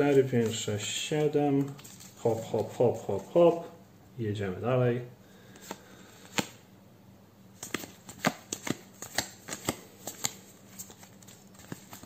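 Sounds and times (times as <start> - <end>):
trading cards snapping: 5.5 - 6.6, 7.6 - 12.0.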